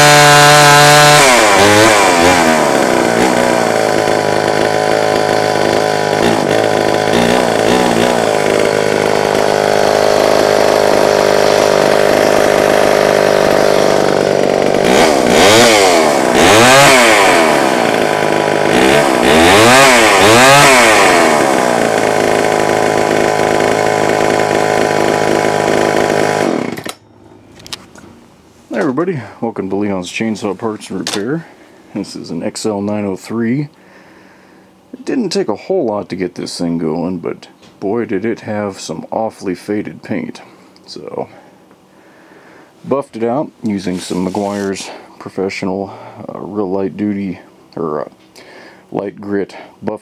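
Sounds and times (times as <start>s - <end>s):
chainsaw idling and revving: 0.0s - 27.0s.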